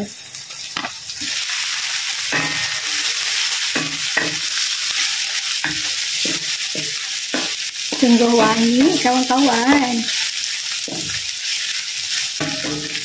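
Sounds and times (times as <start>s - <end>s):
vegetables sizzling in hot oil: 0.0s - 13.0s
wooden spatula scraping a wok: 2.7s - 13.0s.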